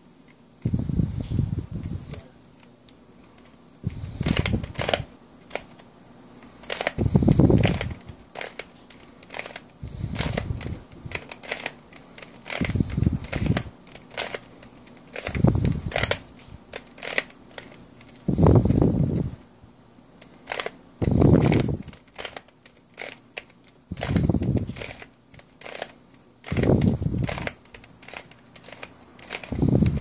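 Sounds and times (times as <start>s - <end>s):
plastic puzzle pieces clicking: 4.2s - 18.2s, 20.2s - 30.0s.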